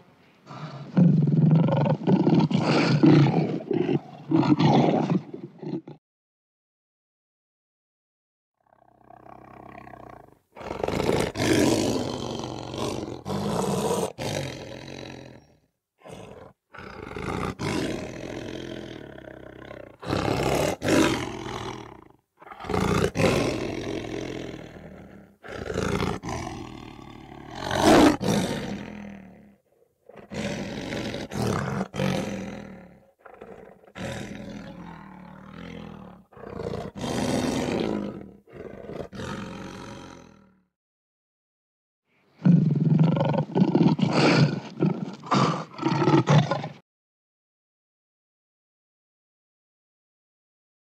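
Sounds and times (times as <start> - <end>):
lion roaring: 0.5 - 6.0, 8.8 - 40.6, 42.4 - 46.8.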